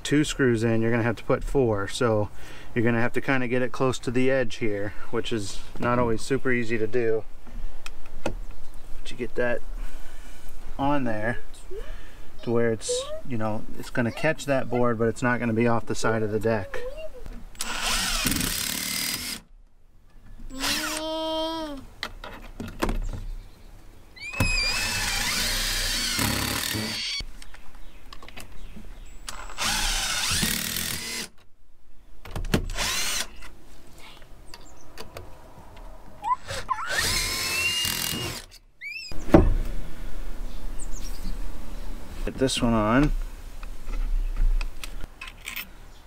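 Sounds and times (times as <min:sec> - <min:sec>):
power drill driving screws: 0:17.6 - 0:19.5, 0:20.6 - 0:21.1, 0:24.2 - 0:27.2, 0:29.3 - 0:31.3, 0:32.7 - 0:33.4, 0:36.4 - 0:38.6.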